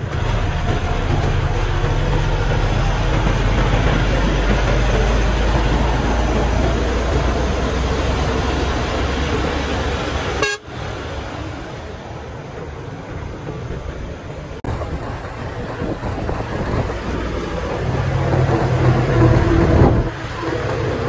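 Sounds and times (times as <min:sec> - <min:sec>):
diesel truck engine rumbling: 0:00.0 - 0:21.0
tyre and road noise: 0:00.0 - 0:21.0
truck horn toot: 0:10.4 - 0:10.8.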